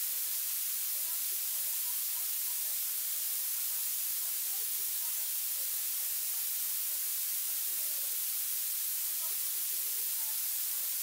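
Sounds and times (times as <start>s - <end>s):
recording hiss: 0.0s - 11.0s
faint speech: 9.0s - 11.0s.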